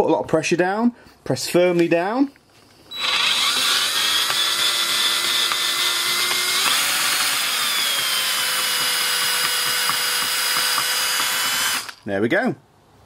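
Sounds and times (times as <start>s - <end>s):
cordless drill motor whining: 2.9s - 12.0s.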